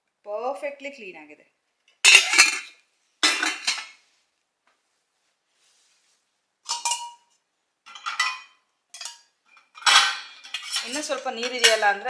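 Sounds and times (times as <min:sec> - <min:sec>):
steel pots clattering: 0:02.0 - 0:04.0, 0:06.6 - 0:12.0.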